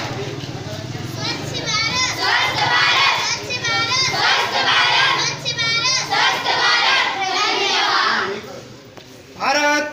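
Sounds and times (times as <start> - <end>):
children shouting together: 1.2 - 8.4.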